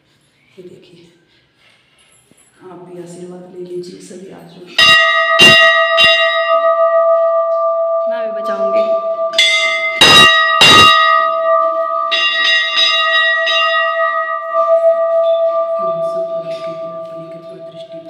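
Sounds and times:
large bell ringing: 3.8s - 18.0s.

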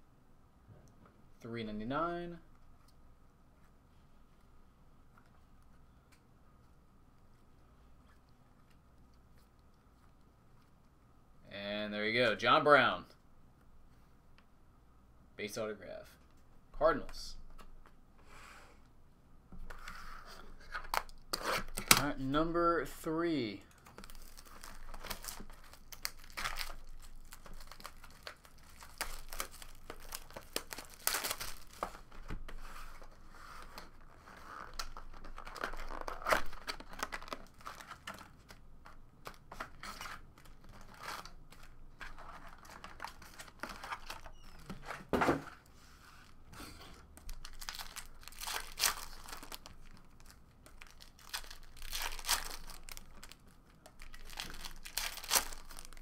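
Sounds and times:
foil packs crinkling: 23.7s - 32.2s, 34.0s - 38.6s, 47.1s - 56.0s
foil packs tearing: 24.0s - 31.8s, 47.3s - 53.4s, 54.0s - 56.0s.

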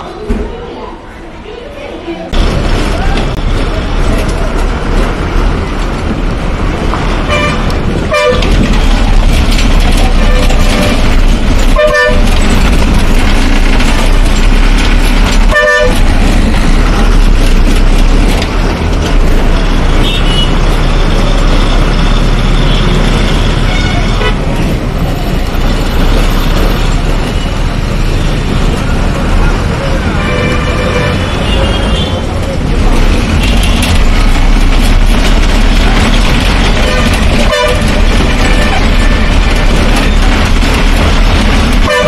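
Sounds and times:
bus engine and road noise: 0.0s - 42.0s
horn honking: 7.2s - 8.7s, 10.0s - 12.4s, 15.4s - 16.2s, 19.9s - 20.7s, 22.5s - 24.6s, 30.0s - 32.3s, 36.7s - 39.0s, 41.8s - 42.0s.

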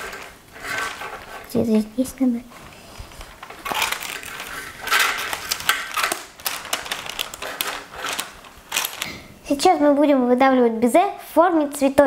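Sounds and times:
paper crinkling and rustling: 0.0s - 1.6s, 2.5s - 9.2s
scissors cutting parchment paper: 3.6s - 9.0s.

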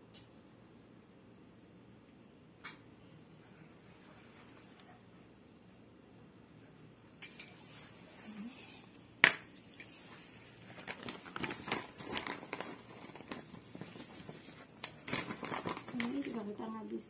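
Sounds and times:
plastic packaging crinkling: 10.5s - 16.6s.

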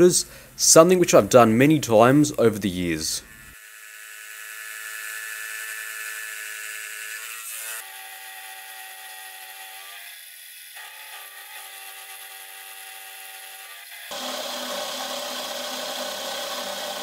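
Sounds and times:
milling machine cutting metal: 3.6s - 17.0s.

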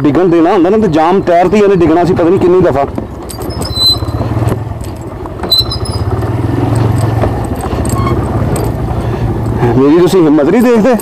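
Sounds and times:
motorcycle engine running: 0.8s - 11.0s
bike knocks and rattles: 2.2s - 11.0s
brief high squeaks: 3.4s - 4.4s, 5.4s - 6.1s, 7.9s - 8.3s.

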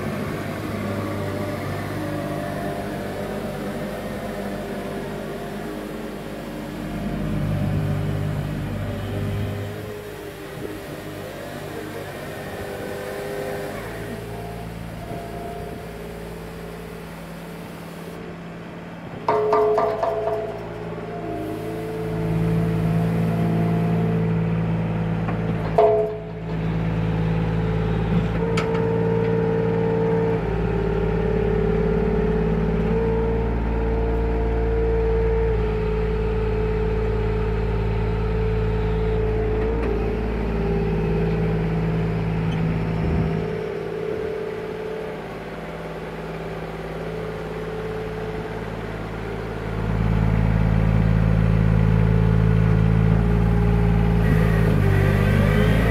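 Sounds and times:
steady whine: 0.0s - 24.3s
diesel engine running: 0.0s - 55.9s
knocks: 19.3s - 20.5s.

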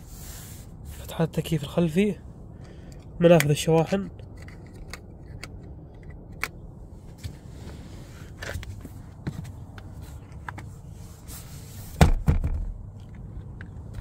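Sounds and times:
handling clicks and rubbing: 2.9s - 12.0s
armrest landing with double thump: 12.0s - 12.8s.

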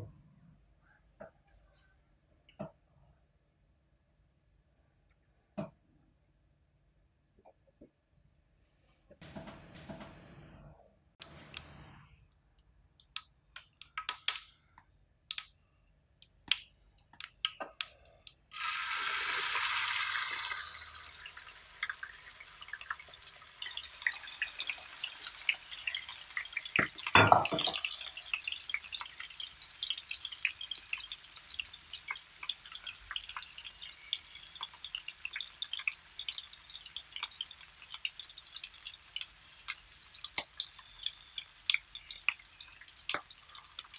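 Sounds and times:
hot oil popping and crackling: 12.6s - 14.6s, 16.4s - 43.9s
meat sizzling in oil: 18.5s - 43.9s.

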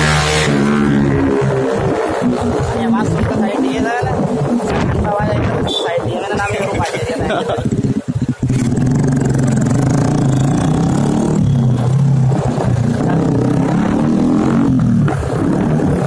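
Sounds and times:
loud motorcycle engine revving: 0.0s - 5.6s, 6.5s - 16.0s.

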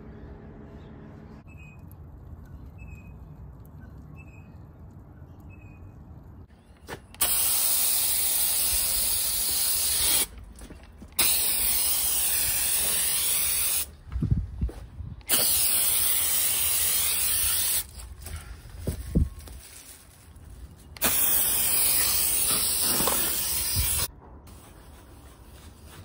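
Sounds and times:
pressure sprayer hissing: 7.2s - 10.3s, 11.2s - 13.9s, 15.2s - 17.9s, 21.0s - 24.1s.

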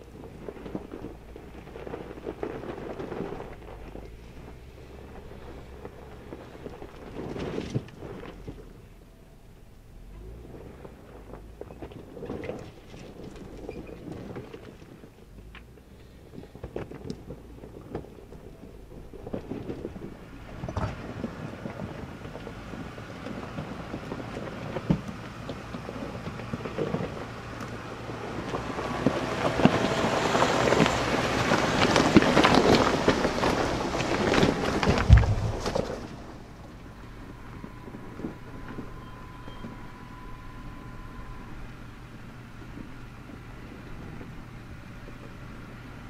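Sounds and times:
engine running low: 0.0s - 46.0s
tyres crunching over gravel: 0.0s - 46.0s.

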